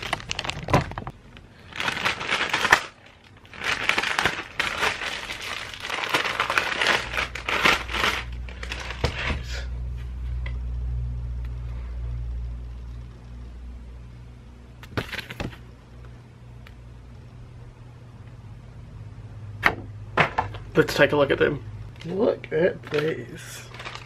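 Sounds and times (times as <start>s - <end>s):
mailing bag tearing and crinkling: 0.0s - 9.7s, 22.8s - 24.0s
low steady hum: 0.0s - 24.0s.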